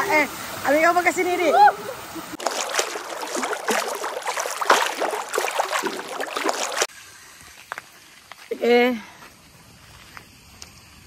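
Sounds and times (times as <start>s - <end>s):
waterfall splashing into a pool: 0.0s - 6.9s.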